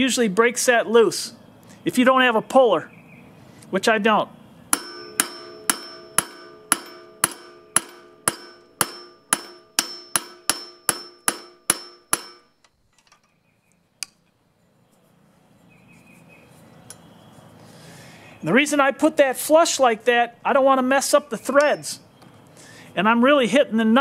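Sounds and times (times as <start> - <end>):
hammer striking metal nut: 4.7 - 13.2, 21.6 - 21.9.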